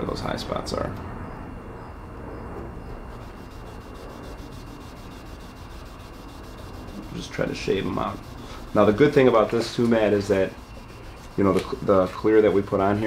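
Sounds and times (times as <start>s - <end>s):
abrasive disc scratching paint: 2.9s - 13.0s.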